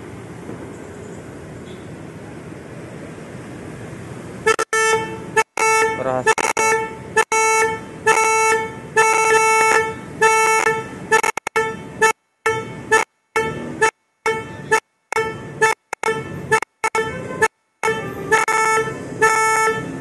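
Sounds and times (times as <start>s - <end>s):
car horn short blasts: 4.5s - 20.0s.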